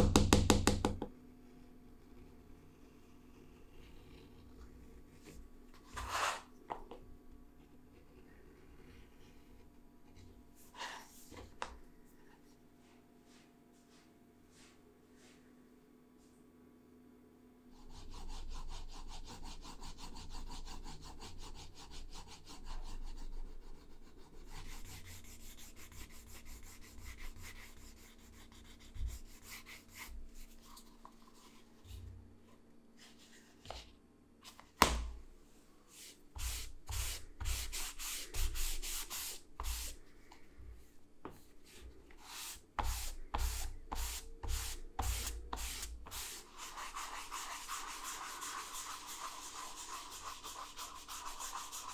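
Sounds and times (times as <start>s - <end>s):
cloth strokes back and forth: 12.2s - 15.6s, 40.8s - 51.9s.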